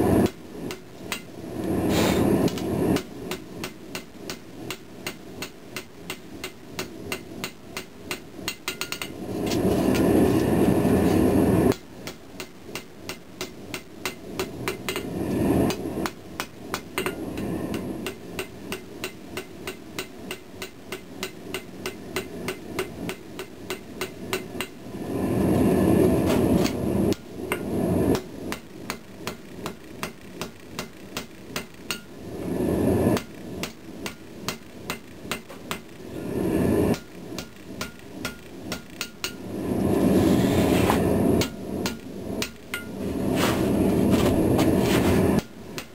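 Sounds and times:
hammer striking steel on anvil: 0.2s - 1.4s, 2.4s - 9.2s, 11.7s - 24.8s, 26.6s - 32.2s, 33.2s - 36.0s, 36.9s - 39.4s, 41.4s - 43.0s, 45.4s - 45.9s
loud rushing noise: 42.9s - 45.4s.

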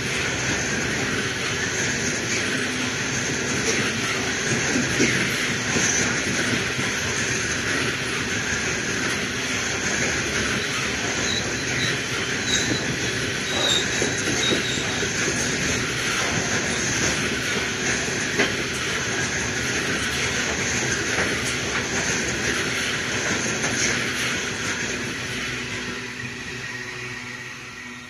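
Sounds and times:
steel wheels rolling on rail: 0.0s - 28.0s
high wheel squeals: 10.4s - 15.9s.

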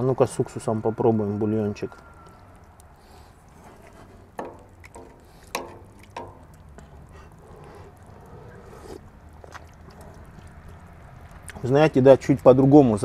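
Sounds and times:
slurping broth: 6.8s - 10.8s.

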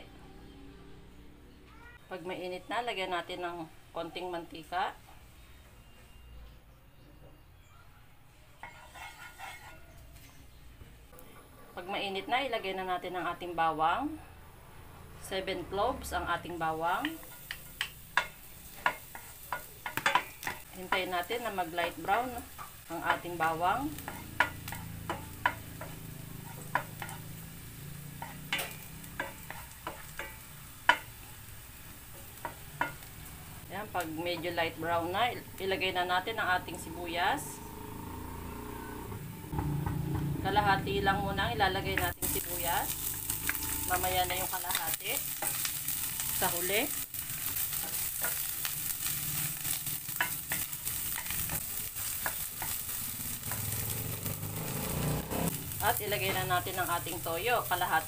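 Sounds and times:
garlic sizzling in oil: 8.6s - 10.0s, 16.0s - 39.0s, 39.6s - 58.0s
wooden spatula scraping pan: 8.6s - 10.3s
spatula tapping a pan: 17.0s - 21.1s, 23.9s - 27.3s, 28.2s - 31.2s, 32.1s - 33.1s, 50.1s - 53.7s.

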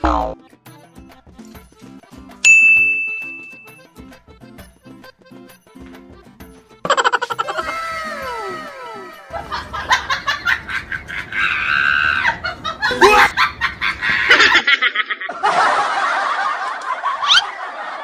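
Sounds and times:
dubbed laughter and snickering: 6.8s - 18.0s.

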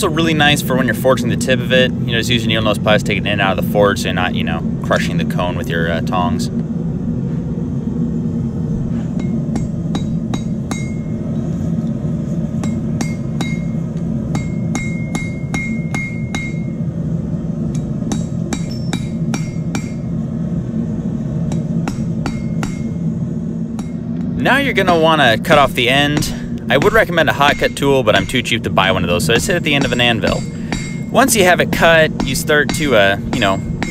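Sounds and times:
low hum: 0.0s - 33.9s
hammer striking metal on anvil: 9.2s - 11.2s, 12.6s - 16.8s, 17.7s - 20.1s, 21.5s - 23.0s, 23.8s - 24.0s, 24.8s - 28.6s, 29.3s - 33.9s.

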